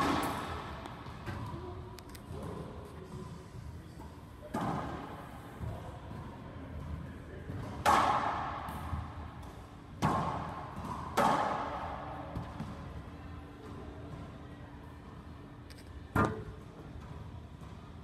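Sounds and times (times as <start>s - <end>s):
racquetball smacks echoing: 0.0s - 1.5s, 7.6s - 12.7s.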